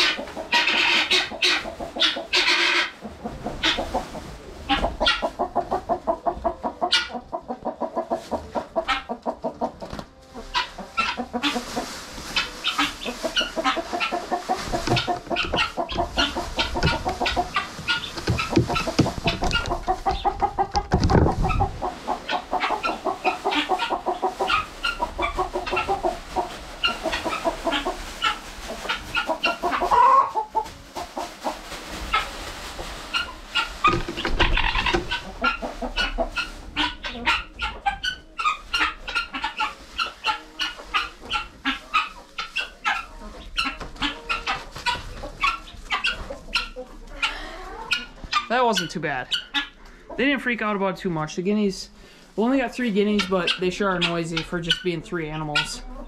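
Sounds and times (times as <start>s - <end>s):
paper and plastic bag rustling: 0.0s - 49.2s
guinea fowl and chickens calling: 0.0s - 50.9s, 51.6s - 56.0s
hens clucking: 0.0s - 56.0s.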